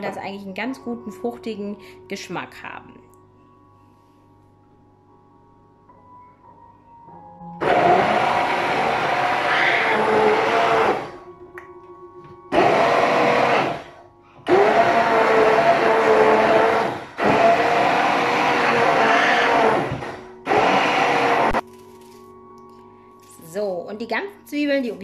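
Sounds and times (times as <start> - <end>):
stick blender motor: 7.6 - 11.2, 12.5 - 21.6.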